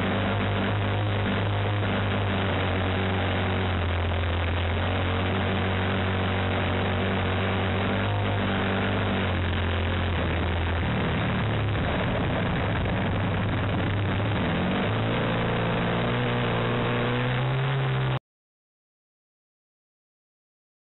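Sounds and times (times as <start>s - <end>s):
model aircraft engine running: 0.0s - 14.7s.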